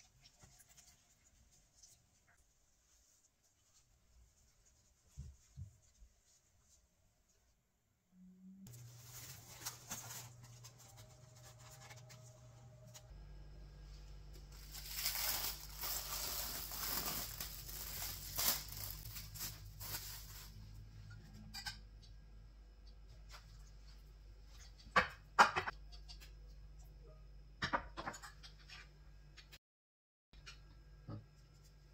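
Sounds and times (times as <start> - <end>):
cling film crinkling: 8.7 - 12.3, 14.4 - 20.5.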